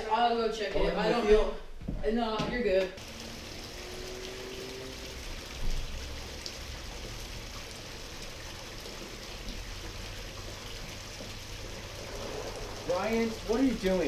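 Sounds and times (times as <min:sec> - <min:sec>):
rushing water-like noise: 0:03.0 - 0:14.0.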